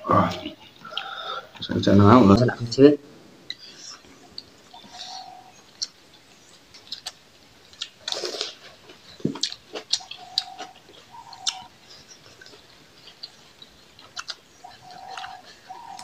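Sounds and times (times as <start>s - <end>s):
faint bird calls: 3.4s - 7.0s, 9.8s - 16.0s
lip smacks while chewing: 6.8s - 16.0s.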